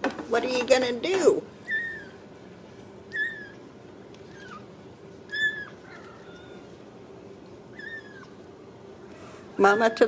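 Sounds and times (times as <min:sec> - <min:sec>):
faint steady hum: 0:00.0 - 0:10.0
kitten mewing: 0:01.6 - 0:02.2, 0:03.1 - 0:03.6, 0:04.2 - 0:04.7, 0:05.3 - 0:06.7, 0:07.7 - 0:08.4.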